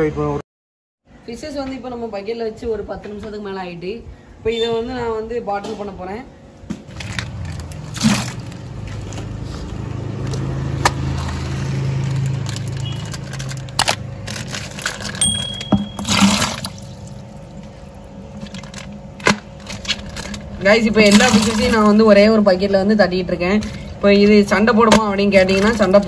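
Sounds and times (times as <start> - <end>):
plastic bags crinkling: 6.9 - 22.1
water pouring into plastic bucket: 16.0 - 17.6.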